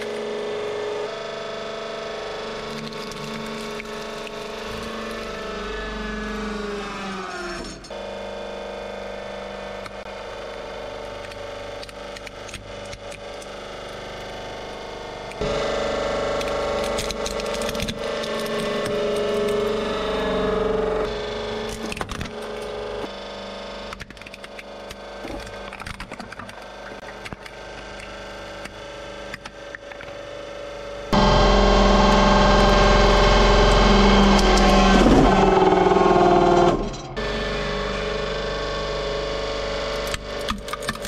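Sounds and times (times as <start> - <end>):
hydraulic press running: 0.0 - 25.8, 26.9 - 40.8
loud steady hum: 0.0 - 40.8.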